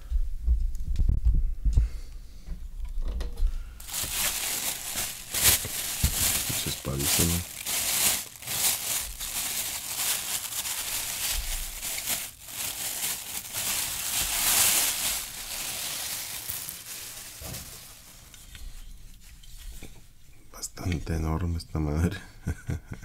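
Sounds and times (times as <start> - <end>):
plastic bag crinkling: 3.8 - 18.6.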